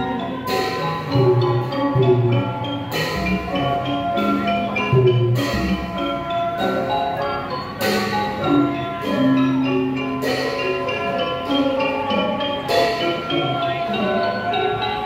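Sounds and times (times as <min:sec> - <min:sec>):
mallet percussion ensemble: 0:00.0 - 0:15.0
sharp percussion strikes: 0:00.0 - 0:15.0.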